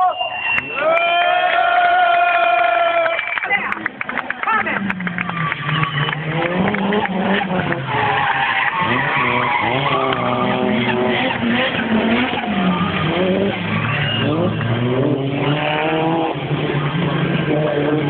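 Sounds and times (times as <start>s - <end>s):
car engines revving: 0.0s - 18.0s
tyres squealing: 7.2s - 14.8s.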